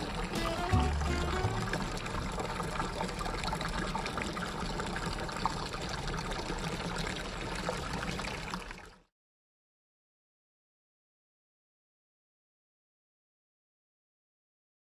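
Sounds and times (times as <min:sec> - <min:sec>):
fountain water splashing into basin: 0:00.0 - 0:09.1.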